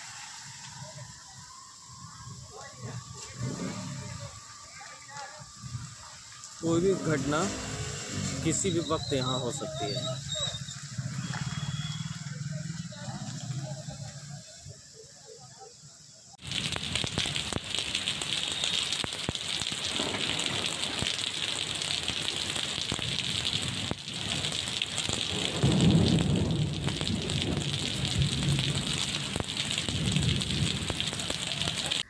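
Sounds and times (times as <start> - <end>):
heavy rain on pavement: 16.4 - 32.0.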